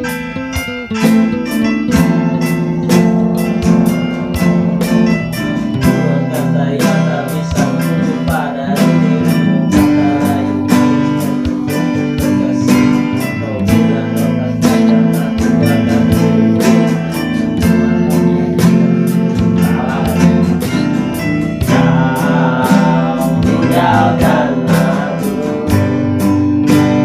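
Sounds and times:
acoustic guitar strumming: 0.0 - 27.0
man singing: 5.7 - 27.0.

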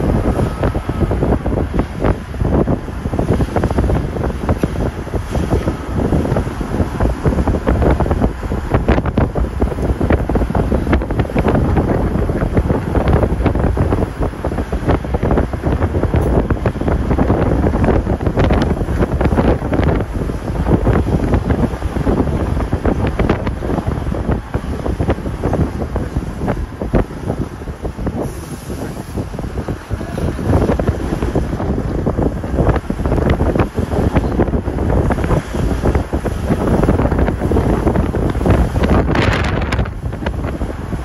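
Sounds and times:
car running noise: 0.0 - 41.0
wind buffeting microphone: 0.0 - 41.0.

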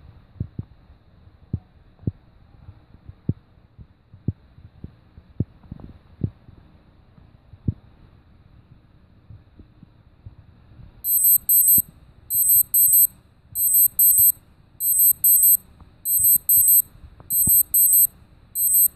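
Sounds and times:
watch alarm beeping: 11.1 - 18.9.

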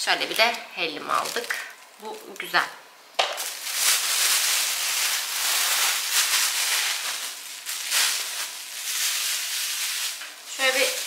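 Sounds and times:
plastic bags rustling: 0.3 - 11.0.

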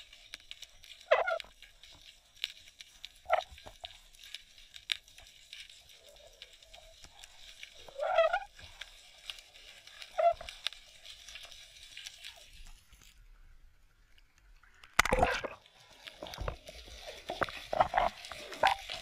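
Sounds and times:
underwater clicks and crackles: 0.0 - 19.0
squeaky creaks: 1.0 - 1.5, 7.8 - 8.7, 9.9 - 10.7, 17.3 - 19.0.

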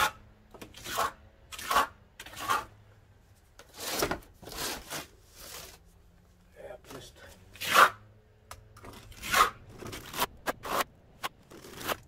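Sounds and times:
steel trowel scraping stucco: 0.0 - 2.8, 3.6 - 5.8, 7.5 - 8.0, 8.9 - 12.0.

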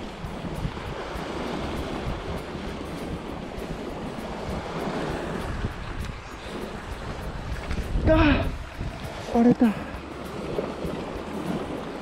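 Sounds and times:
waves breaking on rocks: 0.0 - 12.0
wind buffeting microphone: 0.0 - 12.0.

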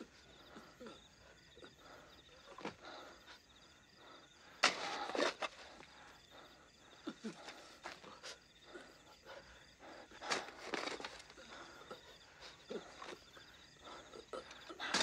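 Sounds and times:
crickets chirping: 0.0 - 15.0
shovel scraping and tossing soil: 4.6 - 5.8, 10.3 - 11.4
shovel scuffs in dirt: 4.6 - 5.8.

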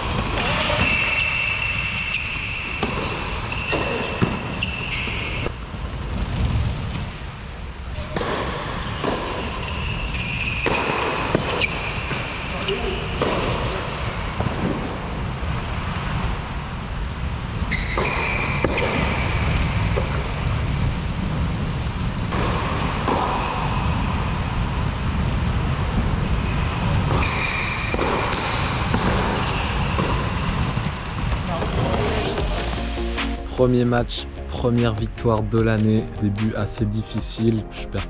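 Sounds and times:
ball bouncing on court: 0.0 - 5.5, 8.0 - 15.0, 17.7 - 20.6, 26.8 - 32.8
racket striking tennis ball: 10.6 - 12.3, 13.1 - 14.9, 27.0 - 30.4.

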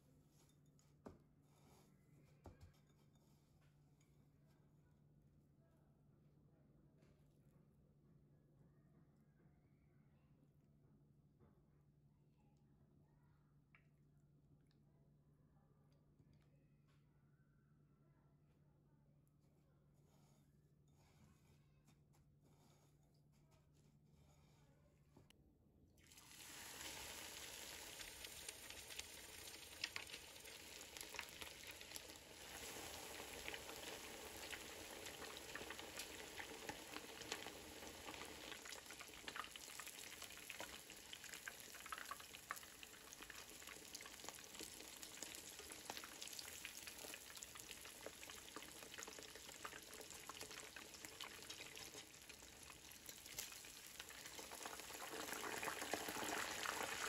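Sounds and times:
deep-frying sizzle with crackling pops: 26.1 - 57.0.

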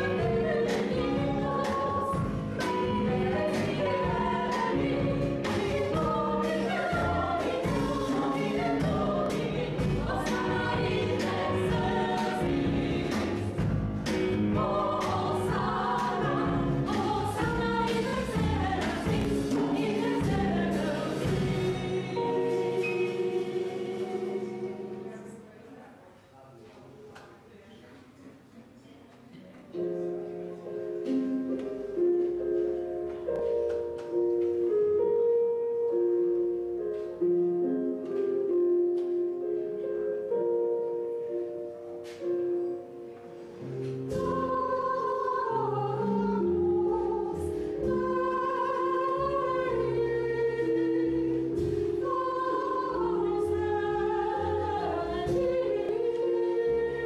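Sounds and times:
double bass notes: 0.0 - 25.3, 43.6 - 57.0
keyboard chords: 0.0 - 25.5, 29.7 - 57.0
women's choir singing: 0.0 - 25.5, 44.0 - 57.0.

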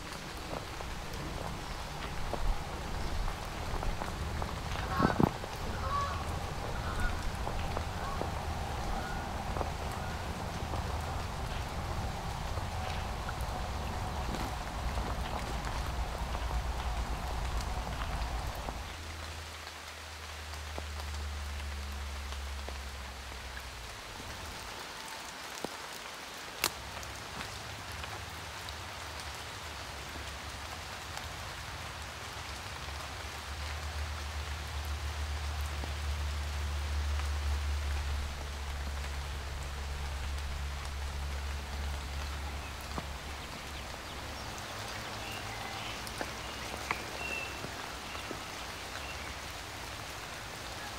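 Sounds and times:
steady patter: 0.0 - 18.9
low rumble: 0.0 - 19.2, 36.2 - 50.7.

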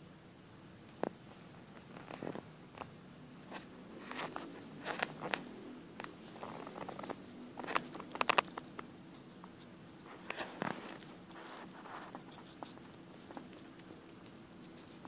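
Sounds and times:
squirrel chewing apple: 3.6 - 15.0.

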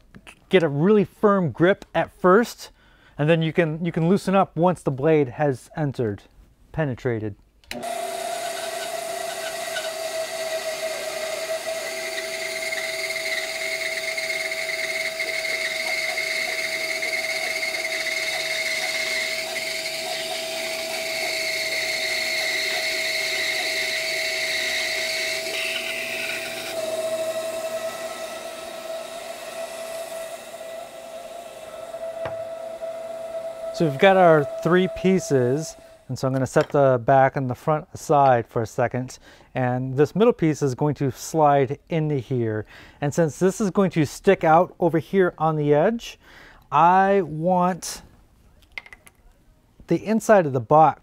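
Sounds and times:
bandsaw cutting wood: 7.7 - 36.1.

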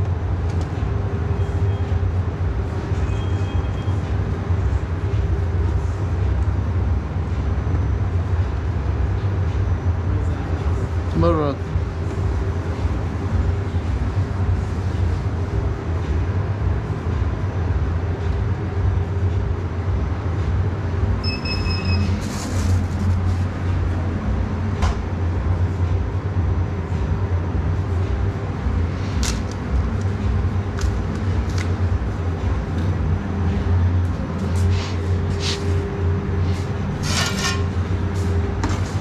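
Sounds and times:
low machine hum: 0.0 - 39.0
short electronic beep: 3.0 - 4.0, 21.2 - 22.2.

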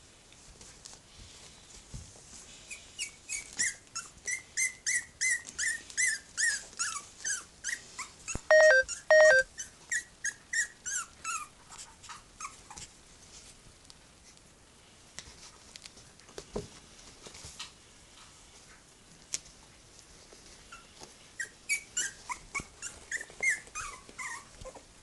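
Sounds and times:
puppies yipping and squeaking: 2.8 - 12.8, 20.7 - 24.8.

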